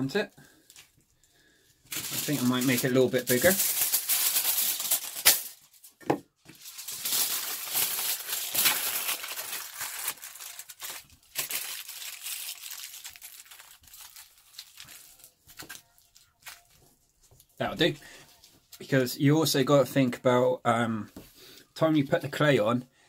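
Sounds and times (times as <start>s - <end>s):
foil crinkling: 0.4s - 17.6s
foil tearing off roll: 1.9s - 5.6s, 6.6s - 15.7s.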